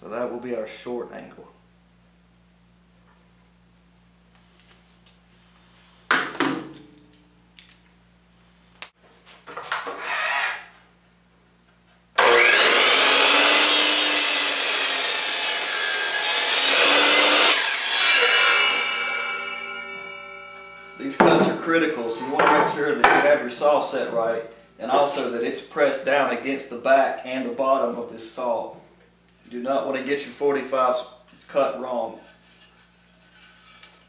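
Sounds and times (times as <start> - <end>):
saw blade winding down: 12.2 - 21.2
miter saw cutting wood: 12.2 - 23.2
knocks: 21.2 - 21.6, 22.3 - 23.3.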